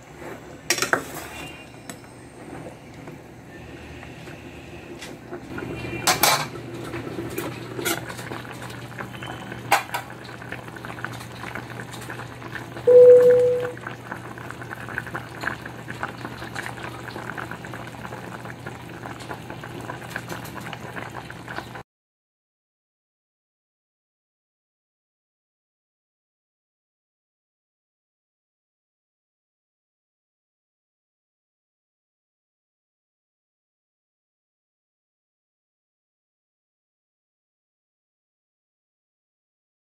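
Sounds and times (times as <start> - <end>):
stew bubbling in saucepan: 3.4 - 21.8
loud short beep: 12.9 - 13.8.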